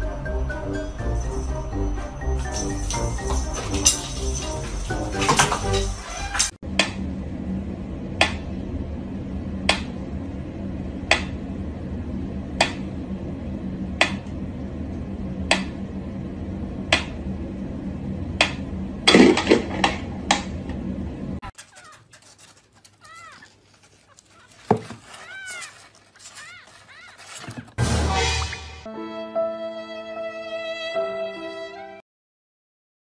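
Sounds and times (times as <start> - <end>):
knocks and rattles: 2.4 - 6.6, 21.5 - 27.8
kitten mewing: 22.9 - 27.5.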